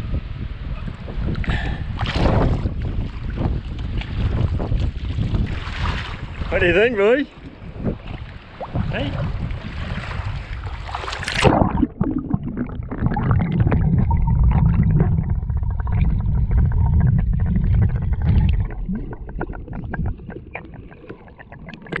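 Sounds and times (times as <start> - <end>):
wind: 0.0 - 22.0
water at the surface: 0.1 - 22.0
splash into water: 2.0 - 3.2, 8.0 - 12.0
muffled underwater rumble: 7.5 - 22.0
clicks and crackles of water: 10.9 - 22.0.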